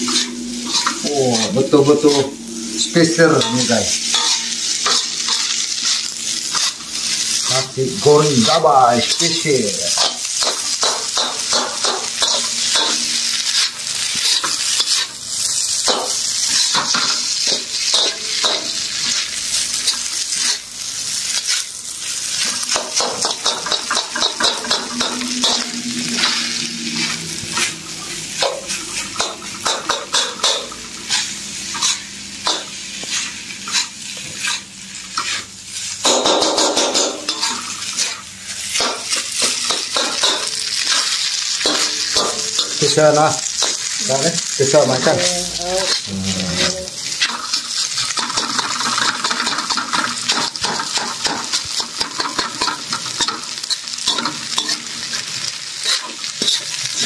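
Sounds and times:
metal ladle scraping a wok: 0.0 - 7.5, 22.4 - 42.9
rice sizzling in a wok: 0.0 - 57.0.

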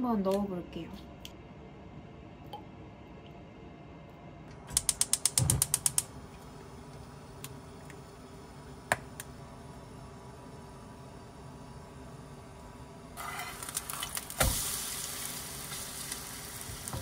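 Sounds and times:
spark igniter clicking: 4.7 - 6.1.

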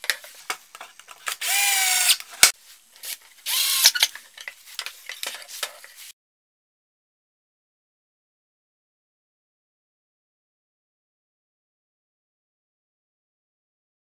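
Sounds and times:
cordless drill whining: 1.4 - 2.2, 3.5 - 4.1.

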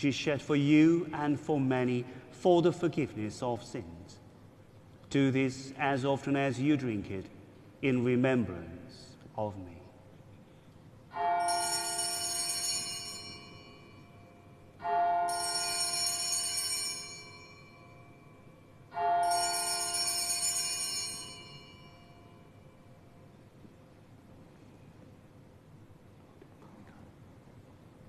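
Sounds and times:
altar bells ringing: 11.1 - 23.0.

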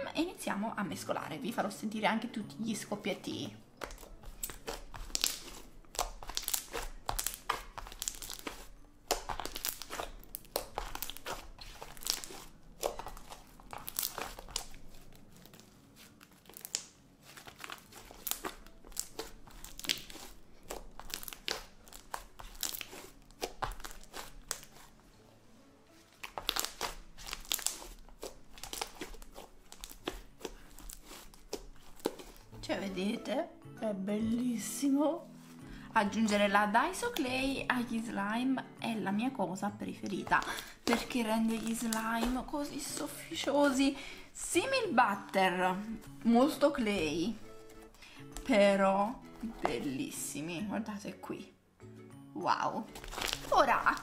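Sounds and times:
slime squelching with wet crackles: 3.0 - 25.0, 26.0 - 32.6, 40.2 - 48.6, 52.9 - 54.0.

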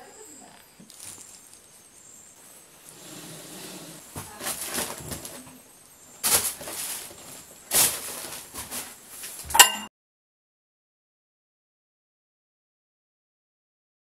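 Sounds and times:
plastic sheet rustling: 0.8 - 1.8, 4.0 - 9.6
bedding rustling: 2.4 - 9.6.

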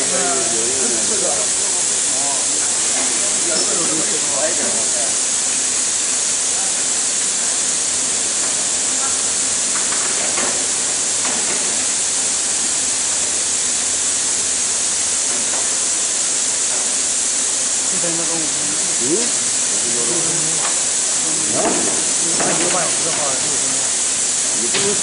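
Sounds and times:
faint voices: 0.0 - 5.3
high-pitched hiss: 0.0 - 25.0.

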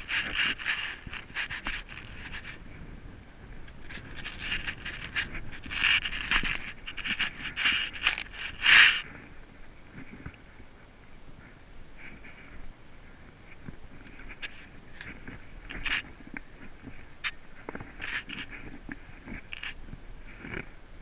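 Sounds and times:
rope rubbing through glove: 0.0 - 2.6, 3.7 - 9.0, 14.2 - 16.1, 16.8 - 20.5.

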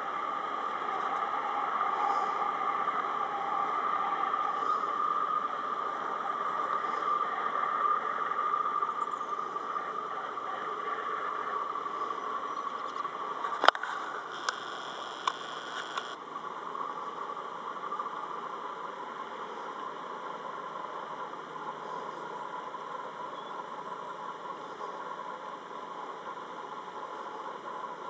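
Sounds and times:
sharp clicks: 13.5 - 16.2.

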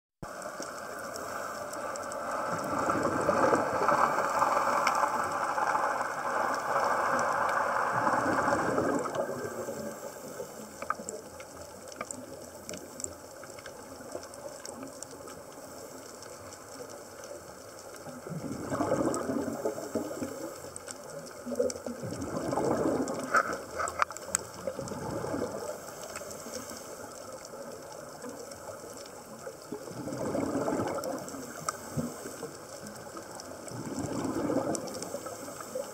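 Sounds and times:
faint underwater clicks: 0.2 - 35.9
underwater bubbles gurgling: 0.2 - 35.9.

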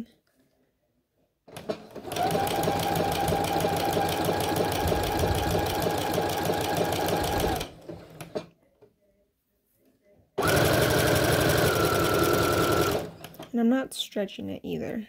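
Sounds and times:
sewing machine stitching: 1.5 - 8.5, 10.4 - 13.5.

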